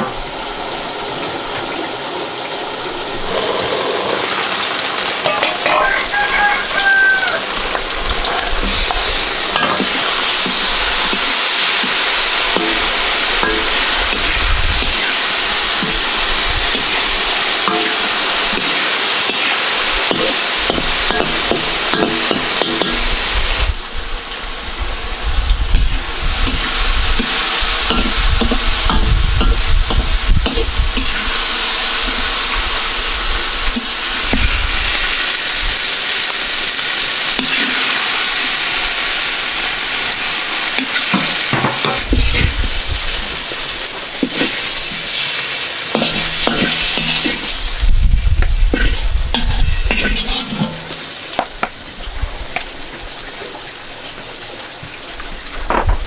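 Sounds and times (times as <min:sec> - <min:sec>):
vegetables sizzling in oil: 0:00.0 - 0:55.7
spatula scraping wok: 0:07.6 - 0:23.6, 0:25.8 - 0:35.2, 0:37.3 - 0:47.8, 0:48.6 - 0:51.2.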